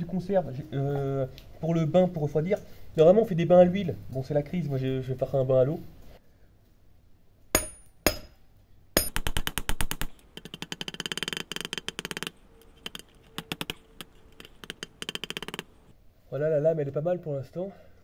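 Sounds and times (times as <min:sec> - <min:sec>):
hammer striking metal blade: 0:07.6 - 0:08.4.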